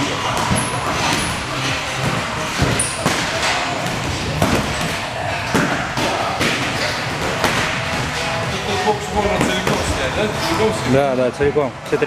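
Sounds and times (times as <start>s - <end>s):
boxing gloves striking: 0.2s - 8.5s.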